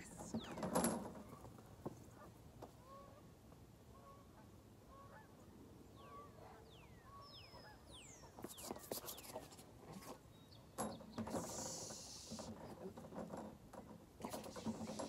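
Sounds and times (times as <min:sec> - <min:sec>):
faint bird calls: 0:03.9 - 0:09.3.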